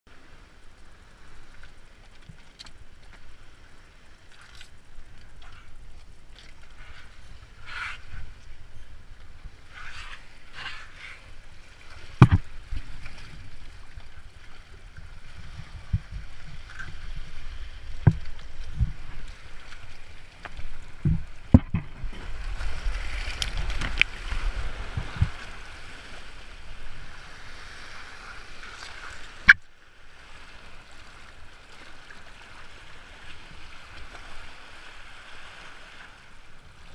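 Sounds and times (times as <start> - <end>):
sea water splashing on rocks: 9.9 - 29.6.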